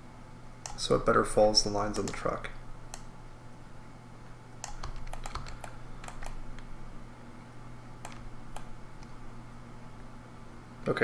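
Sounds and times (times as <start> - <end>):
low steady hum: 0.0 - 11.0
keyboard and mouse clicks: 0.6 - 0.9, 2.0 - 2.3, 4.6 - 6.7, 8.0 - 9.1.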